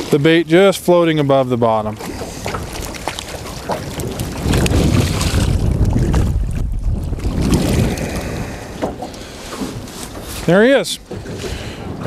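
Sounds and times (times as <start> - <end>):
wind buffeting microphone: 0.0 - 12.0
fish splashing in water: 1.9 - 10.3.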